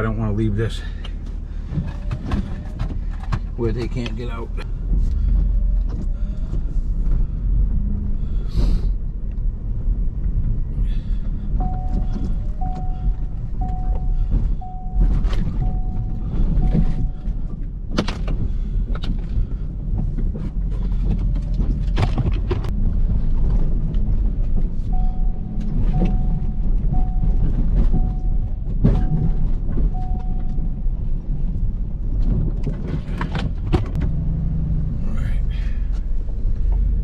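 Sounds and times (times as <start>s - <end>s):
truck engine rumbling: 0.0s - 37.0s
mid-pitched beeps: 11.6s - 17.4s, 24.8s - 31.0s
sharp knocks and thumps: 11.6s - 30.7s.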